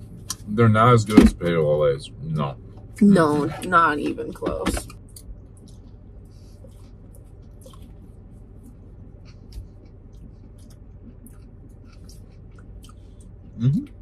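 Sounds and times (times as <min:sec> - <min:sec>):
low steady hum: 0:00.0 - 0:14.0
chewing: 0:05.0 - 0:13.9.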